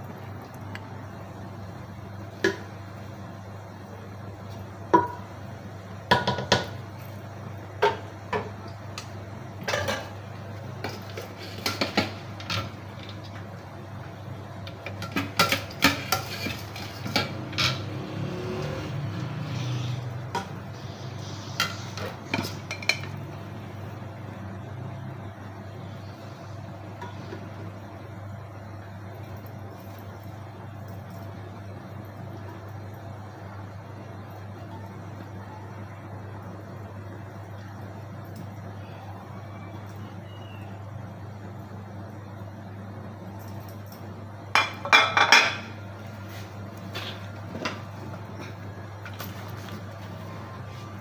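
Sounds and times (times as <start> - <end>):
steady low hum: 0.0 - 51.0
utensils clinking on metal pot: 14.7 - 17.9.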